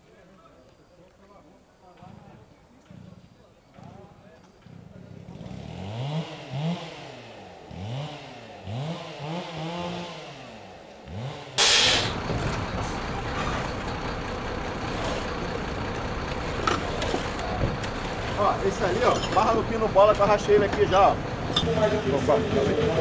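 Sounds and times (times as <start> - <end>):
heavy engine revving: 5.2 - 23.0
loud hiss: 11.6 - 12.2.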